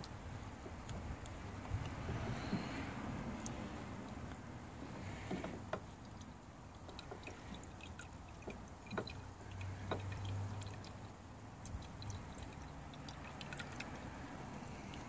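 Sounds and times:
fuel dripping: 0:00.0 - 0:15.0
faint clicks and taps: 0:03.4 - 0:14.0.

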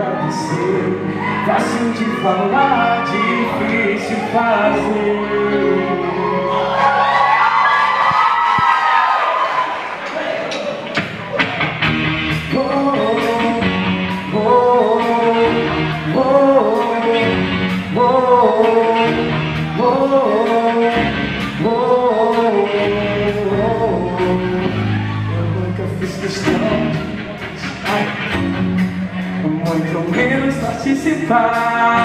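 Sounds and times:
keyboard: 0:00.0 - 0:32.0
guitars: 0:10.5 - 0:32.0.

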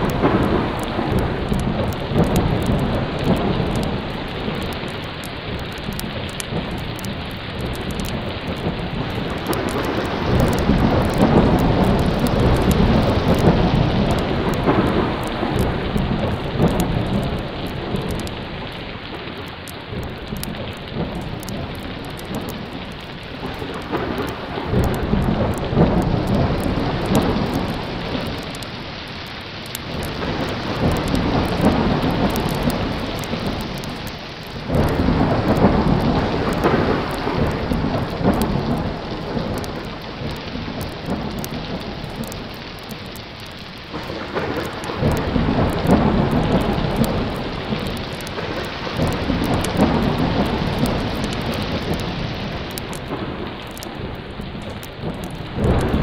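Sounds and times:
heavy rain: 0:00.0 - 0:56.0
thunder rolling: 0:00.0 - 0:56.0.

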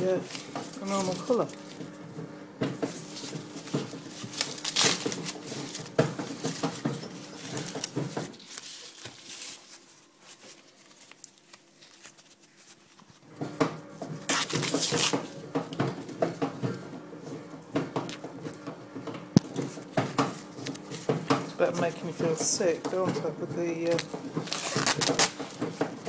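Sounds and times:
motor humming: 0:00.0 - 0:08.3
corn husks rustling and tearing: 0:03.0 - 0:13.2, 0:14.2 - 0:15.3, 0:23.7 - 0:25.6.

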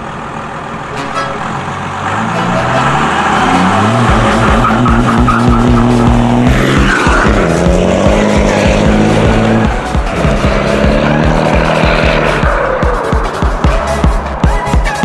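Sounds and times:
steady drum beat: 0:03.5 - 0:15.0.

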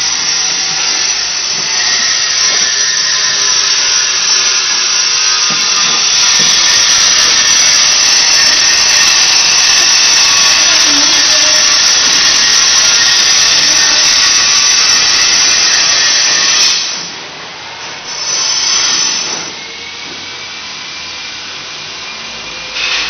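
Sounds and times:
power tool hissing: 0:00.0 - 0:17.3, 0:22.2 - 0:23.0.

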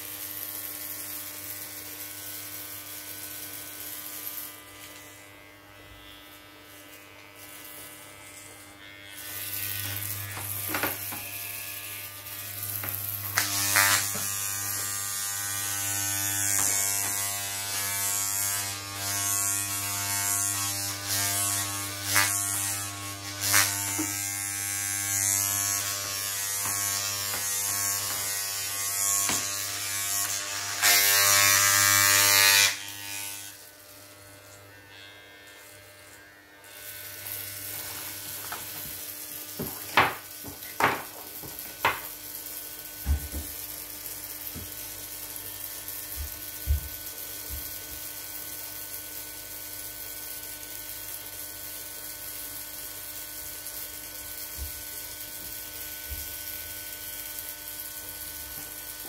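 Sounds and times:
electric hair clippers buzzing: 0:00.0 - 0:59.0.

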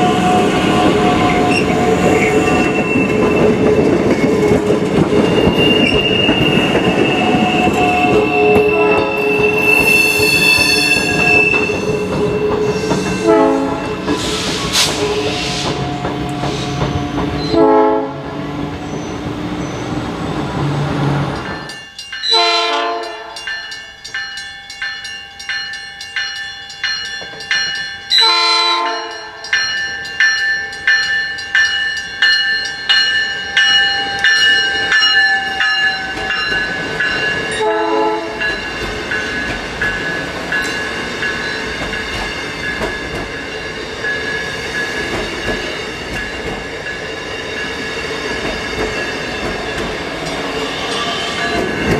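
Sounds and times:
train whine and running noise: 0:00.0 - 0:51.9
train horn blasts: 0:05.4 - 0:12.0, 0:13.1 - 0:14.0, 0:17.4 - 0:18.4, 0:22.3 - 0:23.4, 0:28.2 - 0:29.4, 0:37.6 - 0:38.5.

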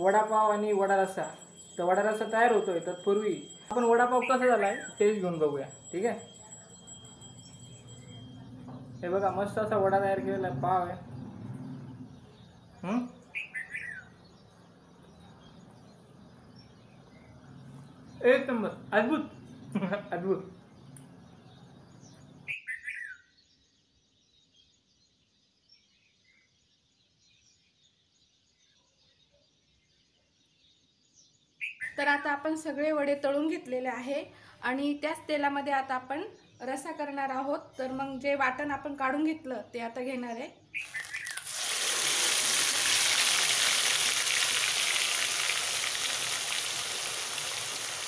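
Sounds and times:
birds chirping: 0:00.0 - 0:33.4, 0:35.1 - 0:48.0
paste sizzling in hot oil: 0:40.8 - 0:48.0.

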